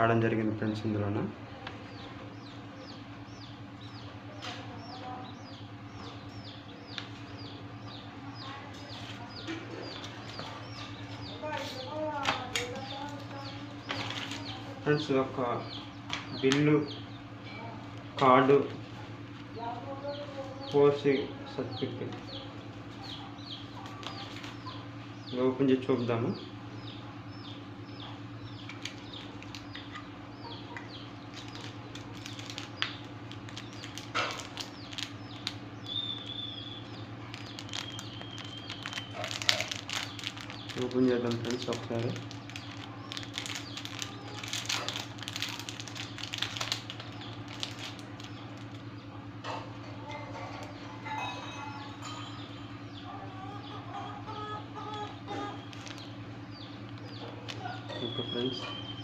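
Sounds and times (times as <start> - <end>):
steady low hum: 0.0 - 59.0
small birds chirping: 0.1 - 59.0
foil and plastic packets rustling: 11.4 - 14.6, 23.6 - 24.6, 28.6 - 30.0, 31.2 - 48.9, 55.0 - 58.6.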